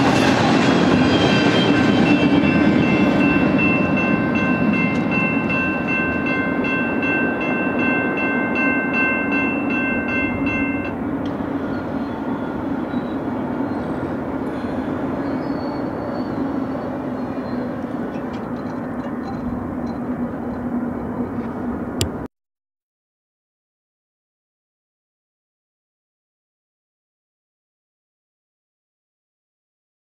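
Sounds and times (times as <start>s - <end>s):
crossing warning bell ringing: 0.0s - 14.1s, 15.8s - 21.3s
train rumbling: 0.0s - 22.3s.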